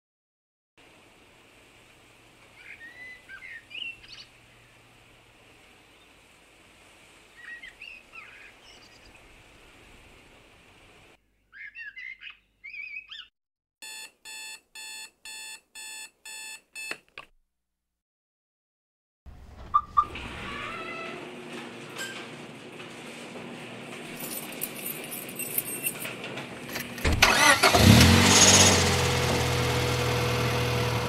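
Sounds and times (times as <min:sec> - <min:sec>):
faint steady hiss: 0:00.8 - 0:11.2
birds chirping: 0:02.6 - 0:04.9, 0:07.2 - 0:09.3, 0:11.4 - 0:13.3
alarm clock beeping: 0:13.8 - 0:16.9.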